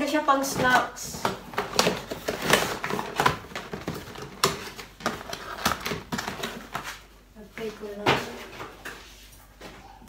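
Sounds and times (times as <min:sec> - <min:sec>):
plastic tray crinkling: 0:00.4 - 0:07.0.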